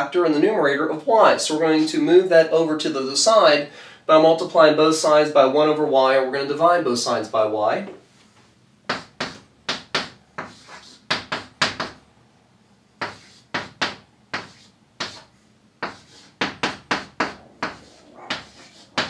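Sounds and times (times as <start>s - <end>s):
chalk tapping and scratching: 8.2s - 12.0s, 13.0s - 19.0s.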